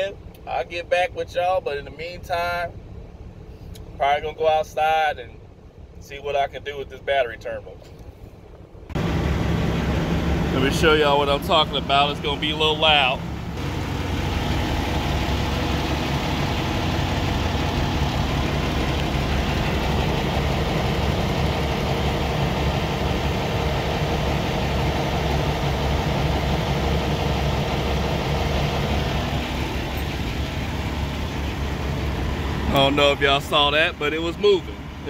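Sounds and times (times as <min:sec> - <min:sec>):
diesel engine idling: 0:00.0 - 0:35.0.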